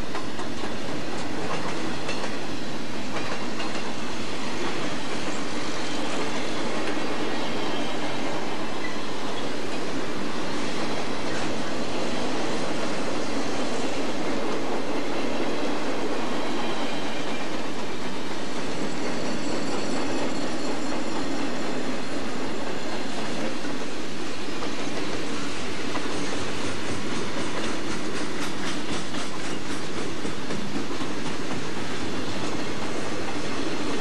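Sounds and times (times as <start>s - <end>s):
wheels clicking over rail joints: 0.0s - 2.4s
train wheels rumbling on rail: 0.0s - 34.0s
high wheel squeal: 18.5s - 22.4s.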